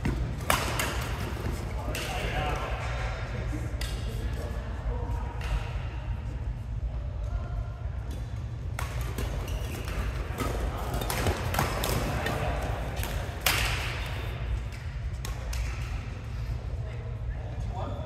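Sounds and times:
rackets hitting shuttlecock: 0.0s - 2.7s, 8.0s - 16.1s.

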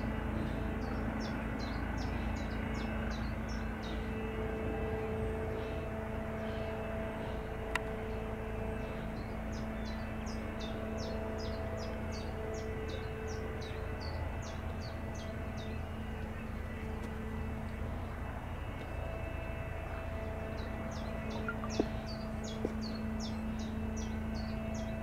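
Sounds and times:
distant helicopter rumble: 0.0s - 25.0s
small bird chirping: 21.3s - 23.3s.

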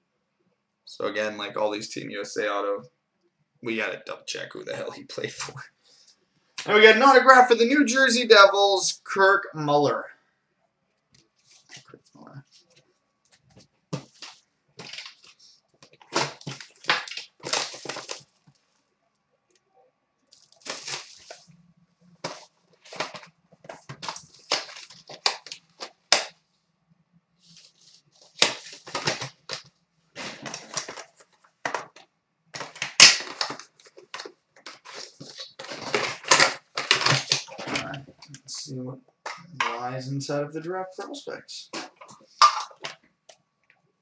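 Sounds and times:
wrapper crinkling and tearing: 14.0s - 18.6s, 20.3s - 21.5s, 22.2s - 26.3s, 32.6s - 38.0s.

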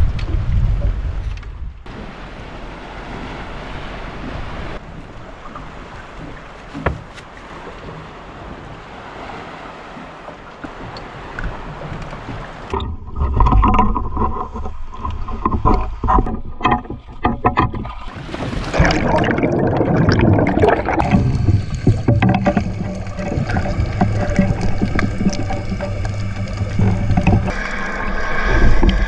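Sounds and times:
water noise: 0.0s - 29.0s
wind: 0.0s - 29.0s
low rumble: 18.8s - 29.0s
steady motor-like tones: 21.0s - 29.0s.

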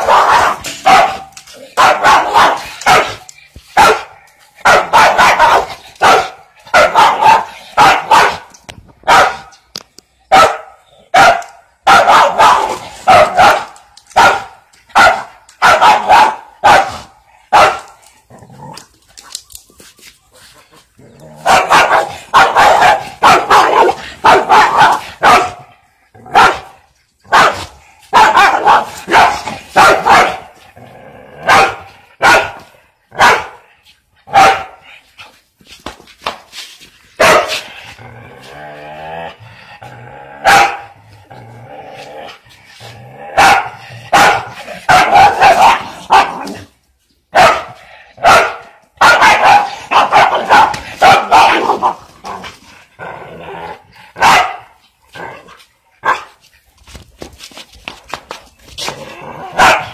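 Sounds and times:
small dog barking: 0.0s - 3.2s, 3.8s - 9.5s, 10.3s - 17.9s, 21.4s - 25.6s, 26.3s - 30.5s, 31.4s - 32.6s, 33.2s - 33.6s, 34.3s - 34.8s, 37.2s - 37.6s, 40.4s - 40.9s, 43.4s - 46.6s, 47.3s - 52.0s, 54.2s - 54.8s, 56.0s - 56.3s, 59.5s - 59.9s.

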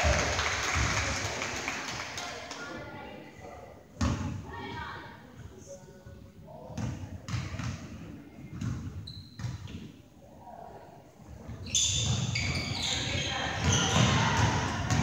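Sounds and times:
voices: 10.4s - 15.0s.

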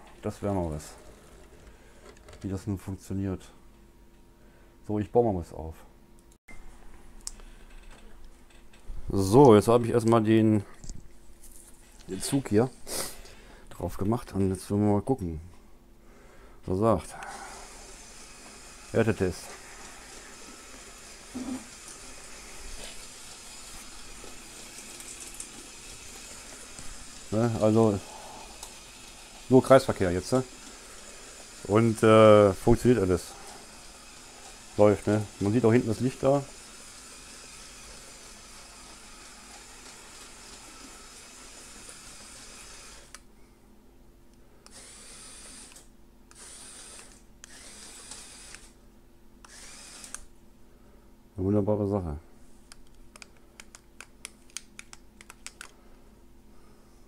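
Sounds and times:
toy train motor whirring: 17.2s - 43.2s, 44.6s - 48.8s, 49.4s - 50.3s.

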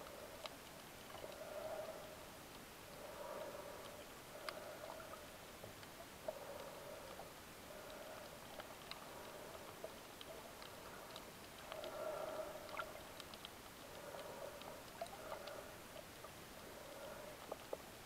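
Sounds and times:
muffled underwater hiss: 0.0s - 18.0s.

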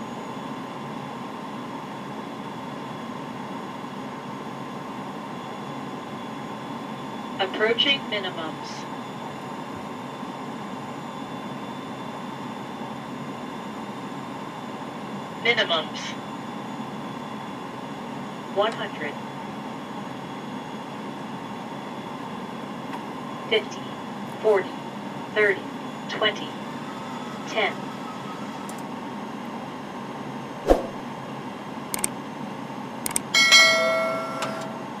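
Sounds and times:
aircraft cockpit noise rushing: 30.6s - 31.2s
ringing bell chime: 33.4s - 34.8s.

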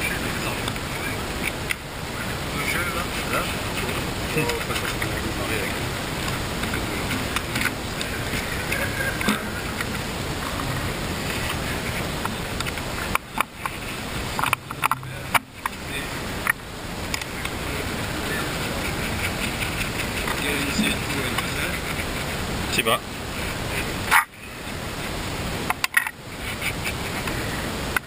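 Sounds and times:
wind noise on microphone: 0.0s - 28.0s.

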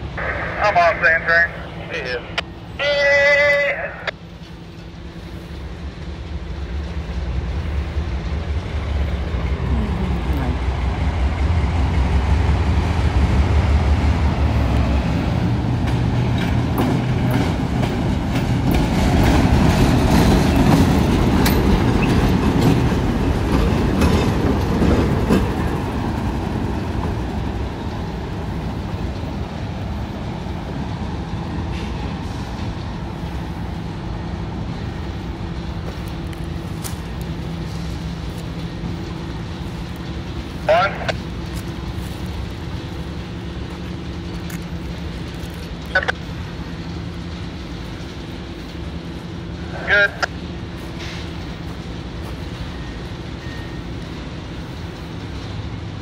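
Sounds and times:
diesel locomotive engine hum: 0.0s - 56.0s
rail cars rumbling: 0.0s - 56.0s
wheels clicking over rail joints: 14.7s - 29.4s.

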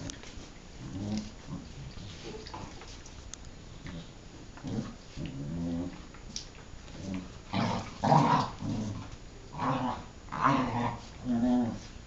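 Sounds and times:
dogs growling in play: 0.8s - 2.8s, 3.8s - 6.2s, 6.9s - 12.0s.

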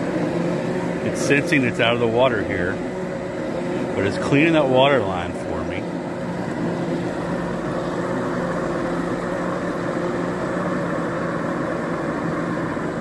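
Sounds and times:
pool cleaner pump motor hum: 0.0s - 13.0s
water spraying: 0.6s - 10.3s.

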